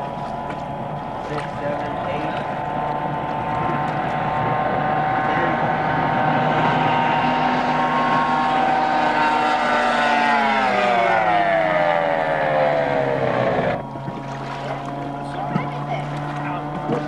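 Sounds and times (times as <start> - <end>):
race boat engine whine: 0.0 - 17.0.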